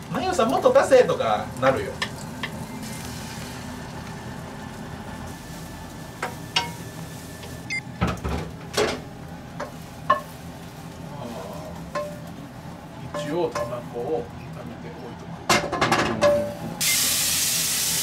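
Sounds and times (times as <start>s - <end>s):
egg sizzling in a frying pan: 0.0s - 7.7s, 16.8s - 18.0s.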